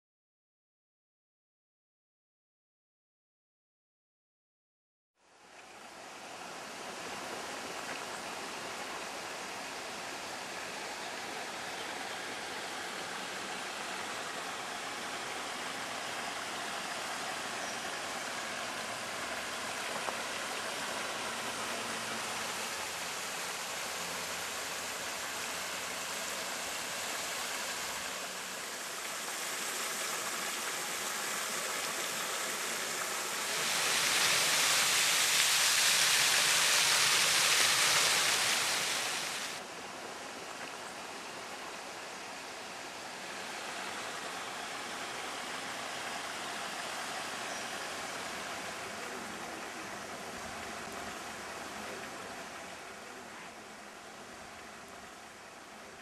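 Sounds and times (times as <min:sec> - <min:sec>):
flowing river water: 0:05.2 - 0:56.0
waterfall splashing into a pool: 0:10.6 - 0:39.6.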